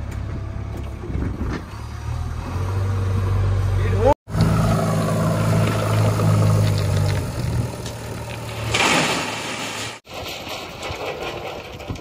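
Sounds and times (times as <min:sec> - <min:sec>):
diesel engine running: 0:00.0 - 0:08.7.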